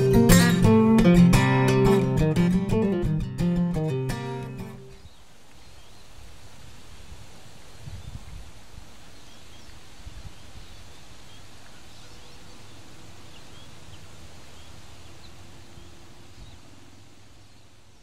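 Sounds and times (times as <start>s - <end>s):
wind gusting on microphone: 4.9s - 18.0s
faint bird chirps: 9.1s - 18.0s.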